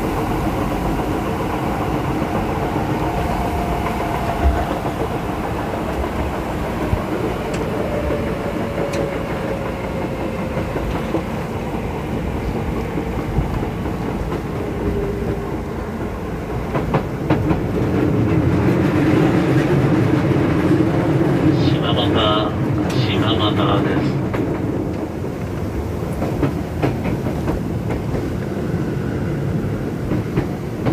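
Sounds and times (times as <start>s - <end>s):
wheels clacking over rail joints: 24.1s - 28.5s.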